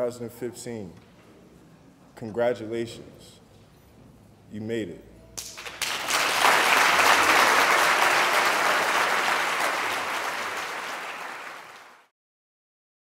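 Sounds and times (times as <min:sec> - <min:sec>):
audience applauding: 0:05.4 - 0:12.1.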